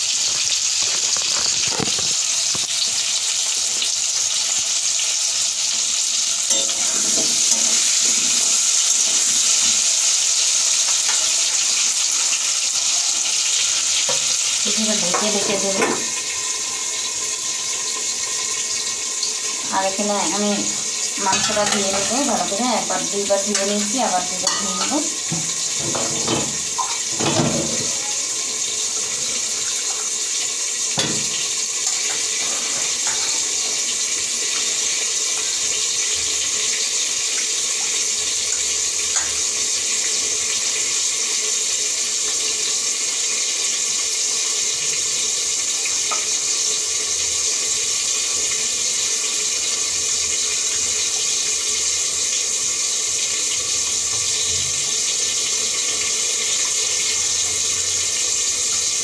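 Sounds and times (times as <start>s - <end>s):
water running into steel bowl: 14.0s - 41.4s.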